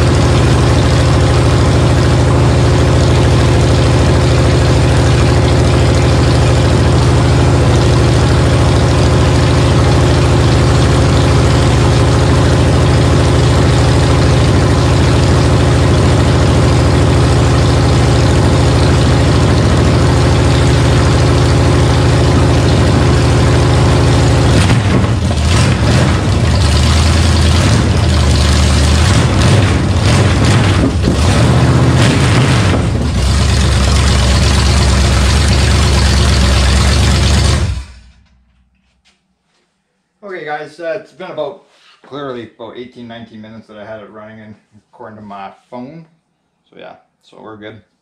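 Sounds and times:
engine running through open headers: 0:00.0 - 0:38.4.

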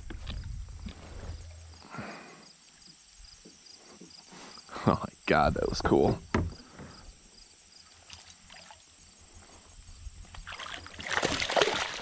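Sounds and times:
water splashing against kayak: 0:10.3 - 0:12.0.

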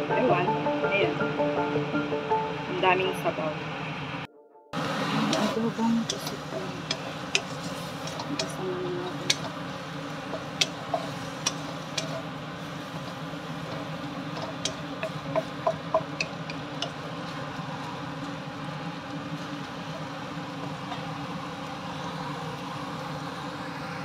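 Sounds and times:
wooden spatula scraping a wok: 0:04.9 - 0:18.0.

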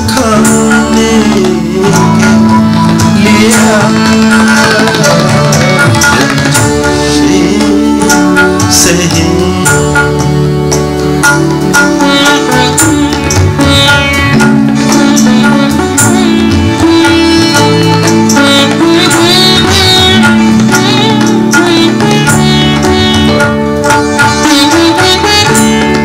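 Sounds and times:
man singing into a microphone: 0:00.0 - 0:10.4
hand drum strokes: 0:00.0 - 0:26.0
harmonium chords: 0:00.0 - 0:26.0.

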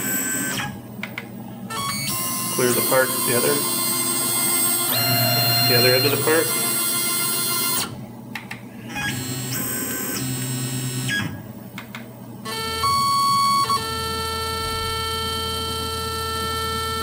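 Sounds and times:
stepper motors whining: 0:01.7 - 0:08.0.

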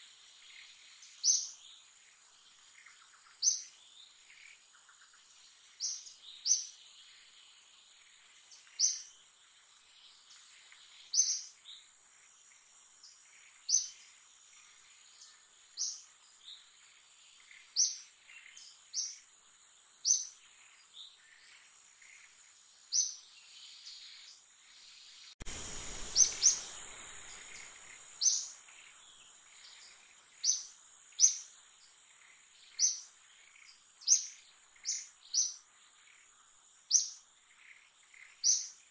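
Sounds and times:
bird chirping: 0:00.4 - 0:09.3, 0:10.0 - 0:11.9, 0:12.5 - 0:38.9
rush of noise: 0:25.4 - 0:28.3
high-pitched insect drone: 0:25.5 - 0:29.0.

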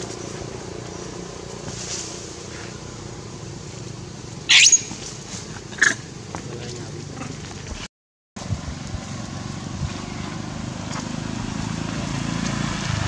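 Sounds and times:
monkey screaming: 0:04.5 - 0:05.1, 0:05.7 - 0:06.1.

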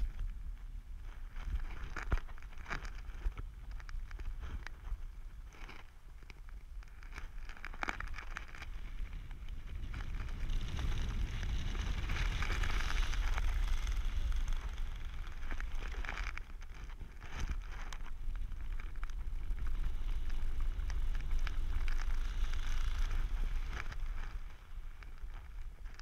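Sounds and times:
wind rushing over microphone: 0:08.6 - 0:26.0.

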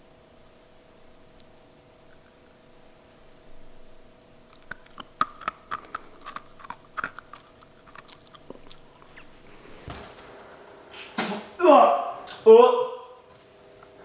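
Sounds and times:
person crunching dry kibble: 0:04.5 - 0:09.7.

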